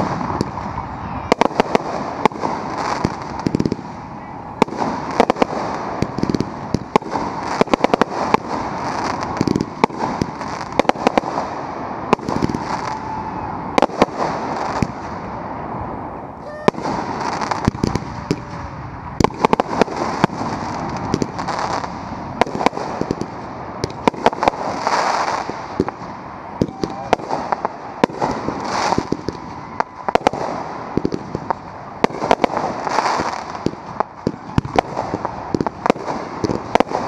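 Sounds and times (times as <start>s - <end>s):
firework crackling: 0.0s - 37.0s.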